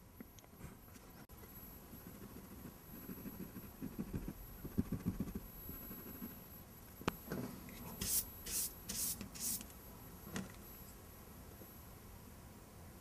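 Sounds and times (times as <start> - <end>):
brush swishing over paper: 7.9 - 9.6
eraser rubbing on paper: 8.0 - 9.6.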